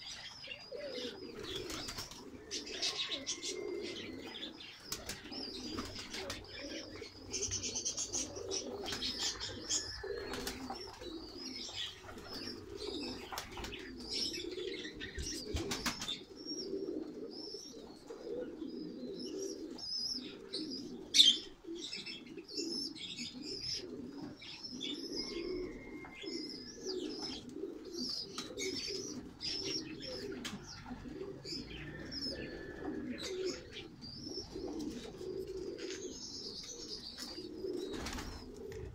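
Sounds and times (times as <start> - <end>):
pigeons cooing: 0.0 - 38.9
wings flapping: 1.4 - 2.3, 4.9 - 6.5, 8.7 - 11.0, 12.0 - 14.0, 15.4 - 16.2, 37.9 - 38.9.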